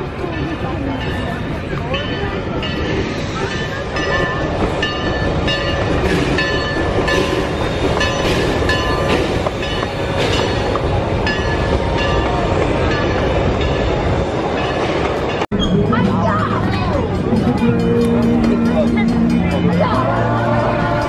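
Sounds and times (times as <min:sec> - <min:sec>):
train cars rumbling on track: 0:00.0 - 0:21.0.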